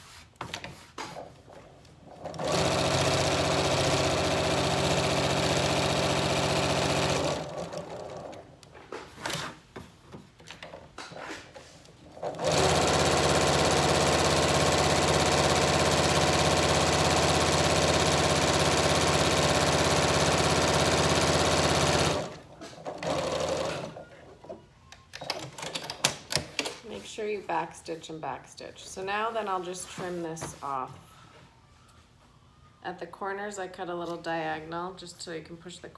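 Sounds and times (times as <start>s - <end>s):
sewing machine stitching: 2.1s - 8.4s, 12.3s - 24.0s.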